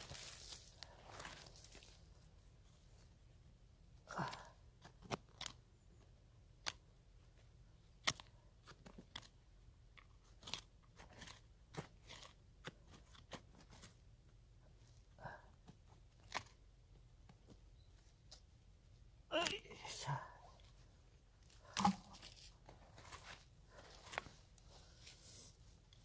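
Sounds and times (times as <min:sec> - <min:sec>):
hands digging in dry soil: 0:00.0 - 0:03.2, 0:04.1 - 0:14.8, 0:20.6 - 0:26.0.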